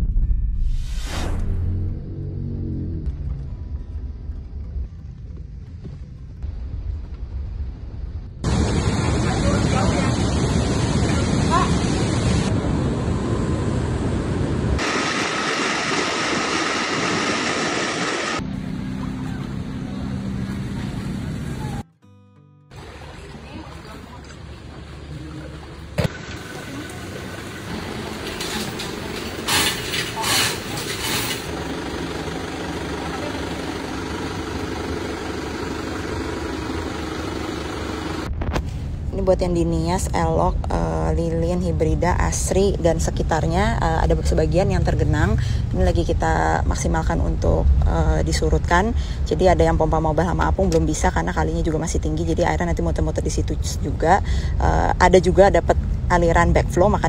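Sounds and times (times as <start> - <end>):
engine humming: 1.3 - 21.9, 22.7 - 57.0
pump whine: 8.4 - 21.8
water rushing: 8.5 - 12.5, 14.8 - 18.4.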